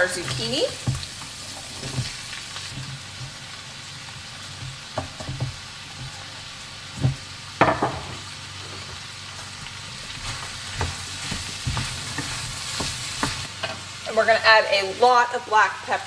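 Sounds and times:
food sizzling in a frying pan: 0.0 - 16.0.

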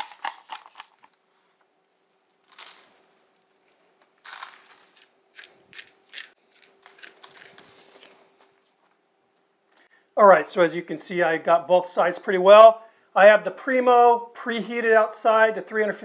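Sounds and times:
pepper grinder crunching: 0.0 - 1.2, 1.8 - 8.5.

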